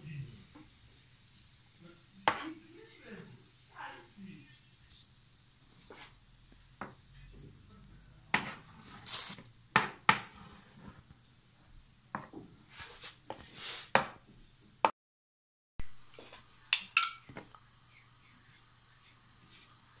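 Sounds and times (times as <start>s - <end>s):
cutlery tapping on wooden board: 12.1s - 12.4s, 16.8s - 17.5s.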